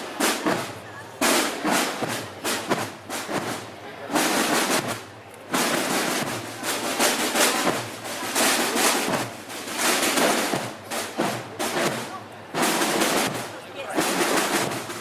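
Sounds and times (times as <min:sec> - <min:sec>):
marching snare drum rolls: 0:00.0 - 0:15.0.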